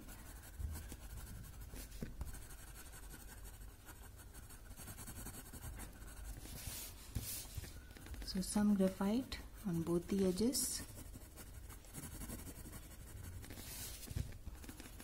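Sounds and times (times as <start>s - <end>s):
pencil scratching on paper: 0.0s - 8.5s, 9.6s - 15.0s.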